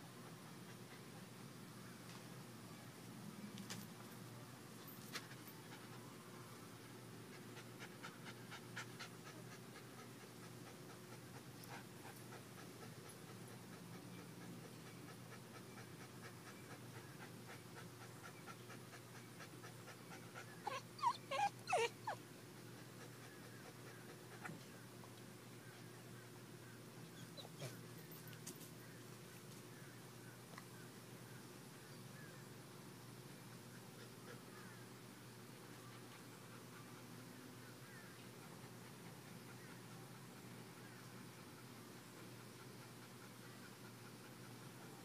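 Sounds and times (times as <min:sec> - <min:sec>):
puppy panting: 0:07.3 - 0:24.6, 0:38.4 - 0:45.0.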